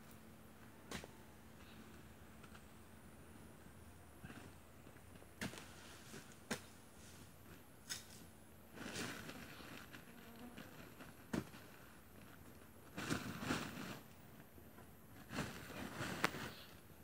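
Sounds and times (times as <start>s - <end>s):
plastic sack rustling: 8.8s - 14.0s.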